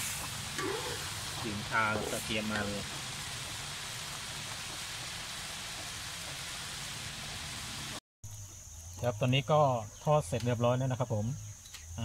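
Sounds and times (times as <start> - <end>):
deep-frying sizzle in hot oil: 0.0 - 8.0.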